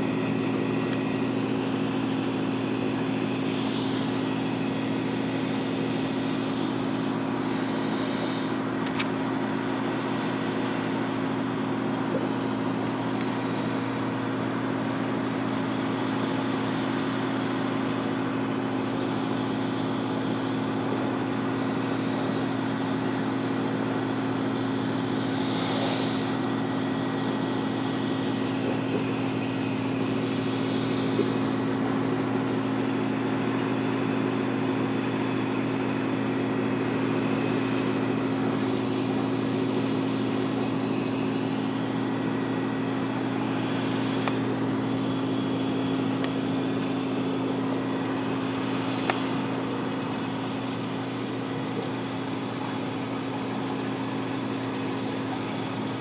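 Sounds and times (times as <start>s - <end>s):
electrical hum of tank pumps: 0.0s - 56.0s
even hiss: 7.4s - 8.6s, 25.0s - 26.5s, 48.4s - 49.5s.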